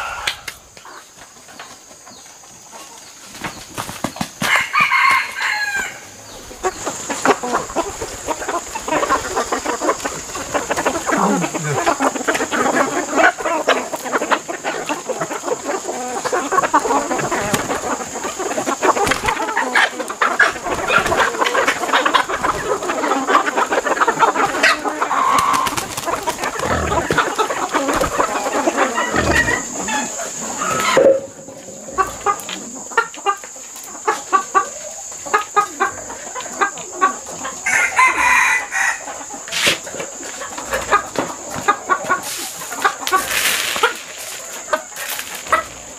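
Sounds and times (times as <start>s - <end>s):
rooster crowing: 0.0s - 0.5s, 4.5s - 6.2s, 28.1s - 31.0s, 37.6s - 39.1s
chickens clucking and squawking: 0.0s - 45.9s.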